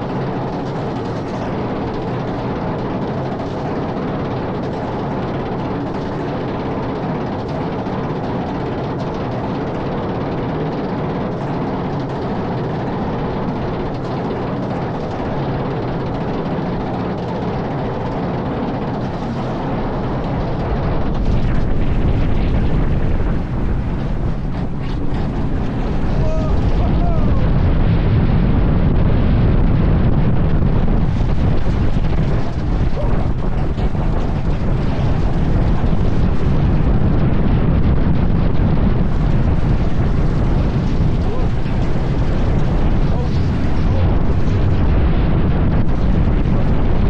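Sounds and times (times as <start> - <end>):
roller coaster train rumbling: 0.0 - 47.0
wind rushing over microphone: 0.0 - 47.0.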